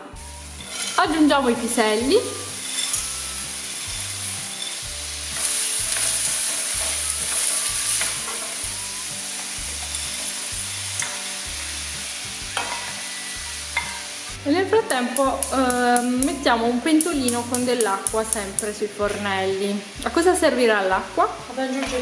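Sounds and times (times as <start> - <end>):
peas sizzling in hot oil: 0.0 - 22.0
wooden spoon clicking on pan: 15.1 - 16.2.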